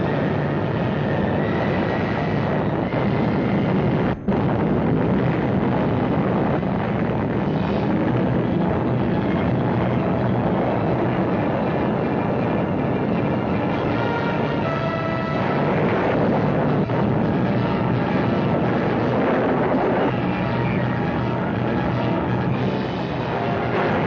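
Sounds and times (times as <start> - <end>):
loud rushing blast noise: 0.0 - 24.0.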